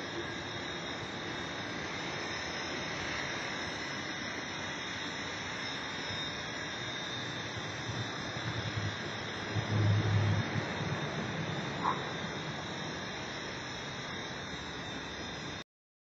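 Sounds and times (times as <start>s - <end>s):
radio-controlled helicopter hovering: 0.0s - 15.6s.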